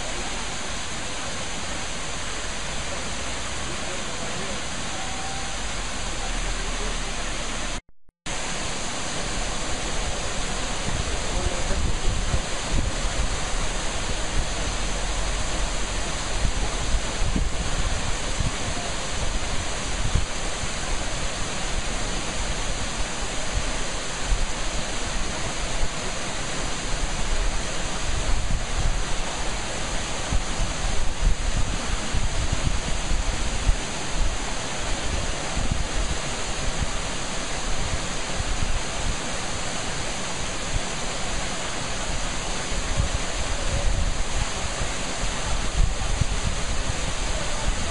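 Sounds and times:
waterfall rushing: 0.0 - 47.9
wind buffeting microphone: 9.3 - 26.0, 26.8 - 39.3, 40.4 - 47.9.

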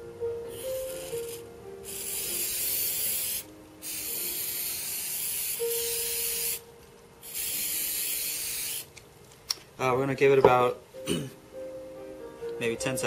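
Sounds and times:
aerosol can spraying: 0.5 - 6.6, 7.2 - 9.0.

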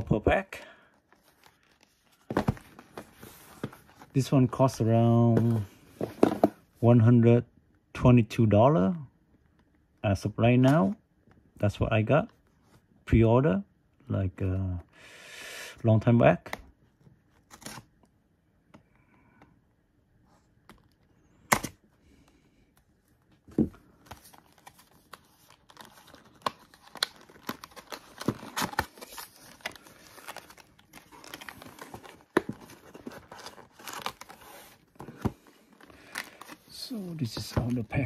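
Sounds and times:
plastic wrapping crinkling: 24.0 - 34.8.

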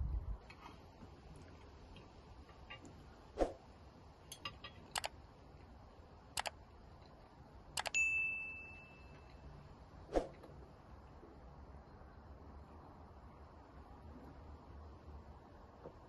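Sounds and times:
bright bell ding: 7.9 - 9.4.

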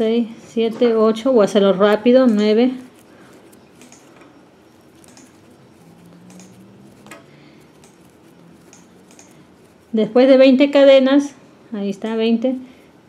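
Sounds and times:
yarn rustling: 1.0 - 11.3
crochet hook ticking: 4.9 - 9.8.

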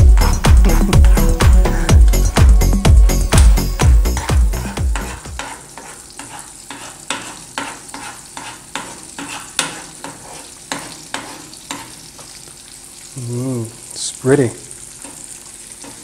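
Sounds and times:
eggs sizzling in a frying pan: 0.0 - 16.0
utensil scraping pan: 4.1 - 12.4.

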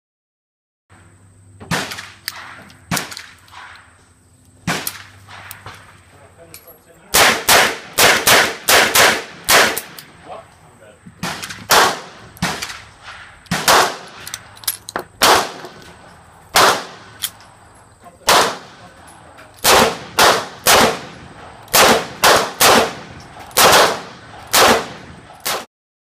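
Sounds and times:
revolver gunshots: 1.7 - 3.9, 4.6 - 5.9, 7.1 - 10.4, 11.2 - 15.8, 16.5 - 17.2, 18.2 - 19.0, 19.6 - 25.7.

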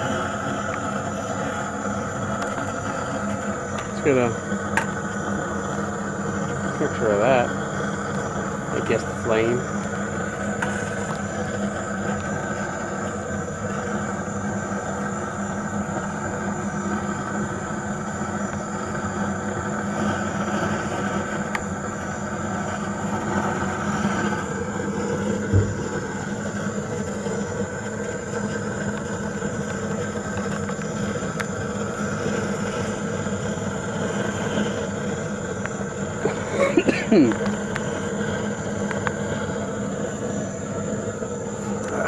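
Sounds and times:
small motor humming: 0.0 - 42.0
thump: 25.5 - 25.8.

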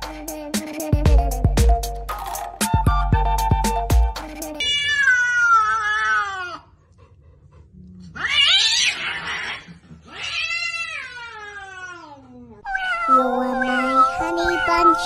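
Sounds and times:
cats yowling: 4.6 - 6.7, 8.1 - 15.0.

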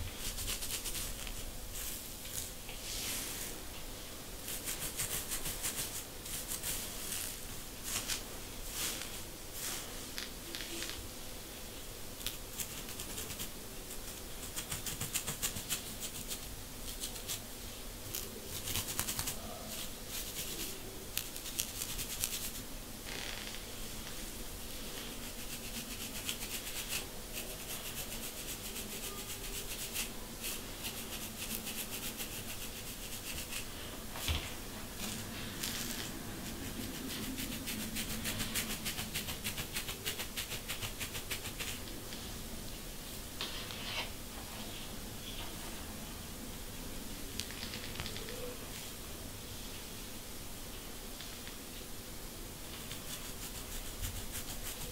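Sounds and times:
comb scratching through hair: 0.1 - 3.6, 4.4 - 9.9, 12.2 - 17.4, 18.1 - 22.7, 24.9 - 33.7, 35.0 - 41.9, 52.7 - 54.9.

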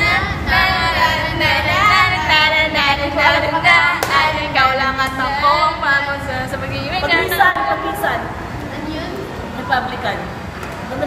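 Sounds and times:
young women singing together: 0.0 - 8.4.

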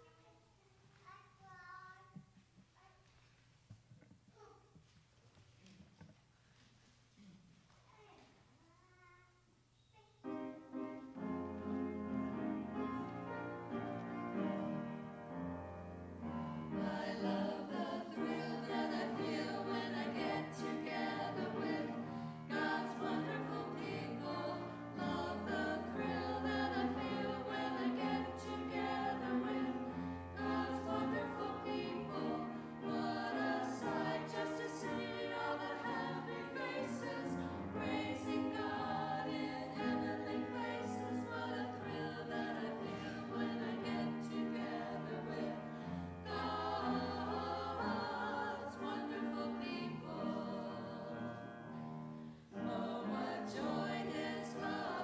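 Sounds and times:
women singing a hymn in parts: 11.5 - 55.0.

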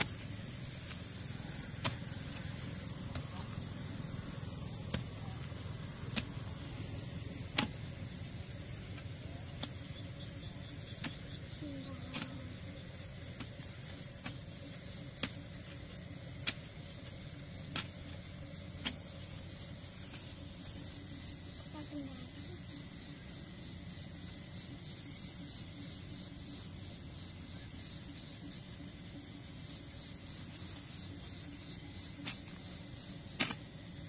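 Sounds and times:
digging tool chopping into soil: 0.0 - 3.5, 5.9 - 6.6, 7.4 - 8.0, 10.9 - 11.5, 13.3 - 16.8, 17.7 - 18.2, 33.2 - 33.8.

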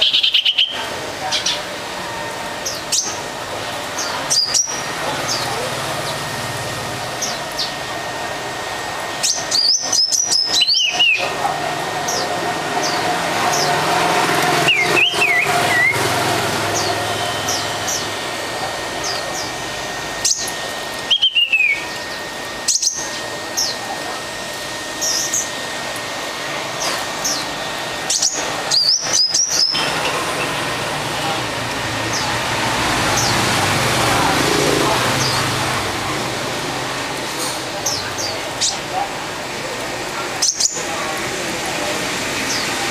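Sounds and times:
songbird whistling and warbling: 9.2 - 11.3, 14.6 - 16.0, 21.1 - 21.9, 28.1 - 29.9.

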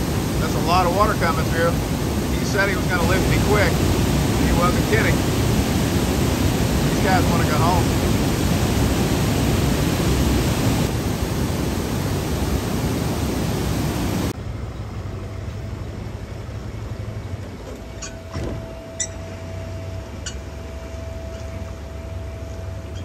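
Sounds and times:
water rushing and churning: 0.0 - 14.4.

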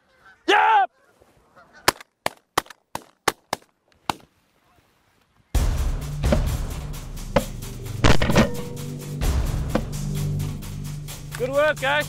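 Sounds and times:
shotgun shots: 8.0 - 8.8.

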